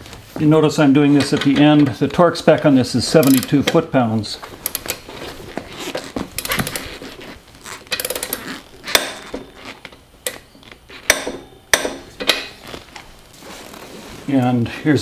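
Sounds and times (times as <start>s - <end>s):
torque wrench clicking: 3.2s - 3.5s, 4.6s - 5.0s, 6.4s - 6.9s, 7.9s - 10.4s.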